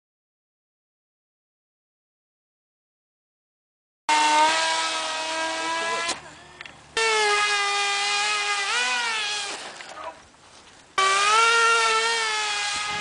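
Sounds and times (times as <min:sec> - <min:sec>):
model plane motor whining: 0:04.1 - 0:06.3, 0:07.0 - 0:10.0, 0:11.0 - 0:13.0.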